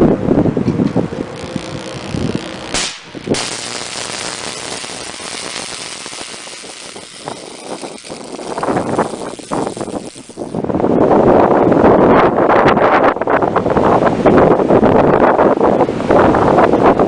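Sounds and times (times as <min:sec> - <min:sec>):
electrical arcing hiss: 0:01.1 - 0:10.7.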